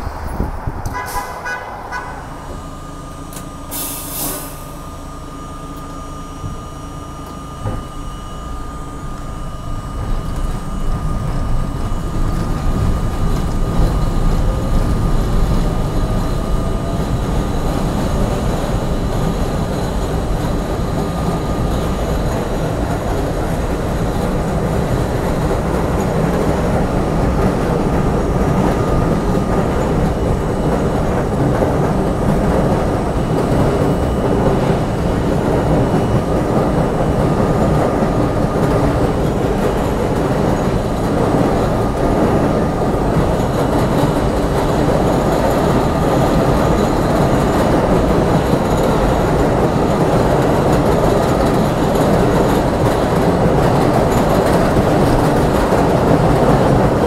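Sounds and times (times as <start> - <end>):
subway train rumbling on rails: 0.0 - 57.0
short hiss: 3.7 - 4.7.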